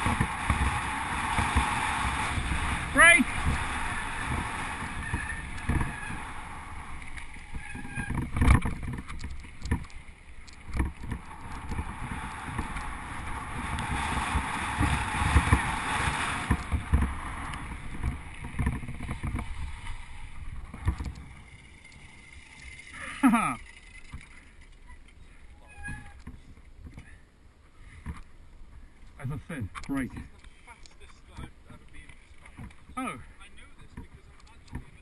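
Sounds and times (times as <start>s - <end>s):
wind noise: 0.0s - 27.1s
bicycle knocking and rattling: 0.0s - 27.2s, 27.8s - 35.0s
bicycle tyres rumbling on gravel: 0.0s - 27.2s, 30.1s - 35.0s.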